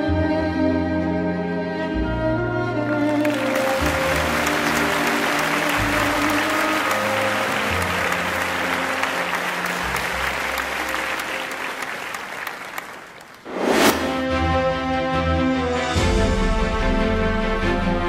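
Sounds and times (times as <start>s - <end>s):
slow music with low notes: 0.0s - 10.9s
dense applause: 3.1s - 13.5s.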